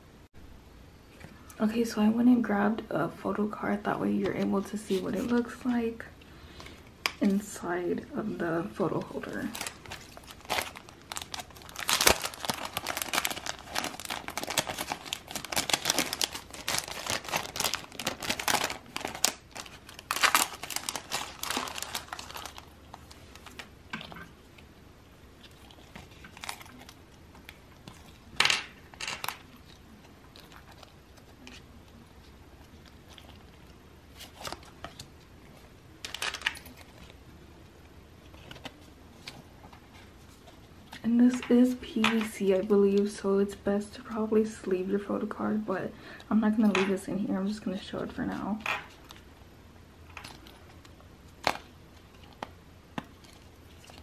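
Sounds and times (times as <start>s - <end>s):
plastic crinkling and rustling: 8.6s - 24.6s, 25.4s - 43.1s, 50.0s - 54.0s.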